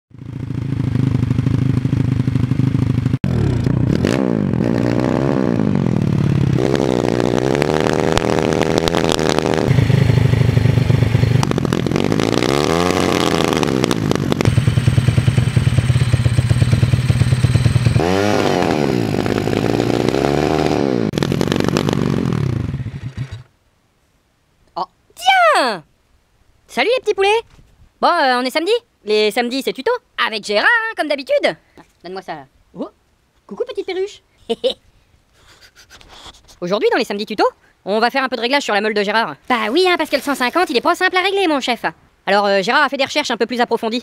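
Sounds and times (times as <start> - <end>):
motorbike engine revving and idling: 0.1 - 23.5.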